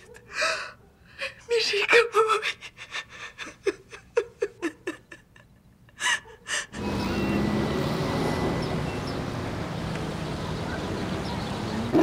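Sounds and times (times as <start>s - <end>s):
woman sobbing: 0.2s - 6.8s
steady street hum: 3.6s - 12.0s.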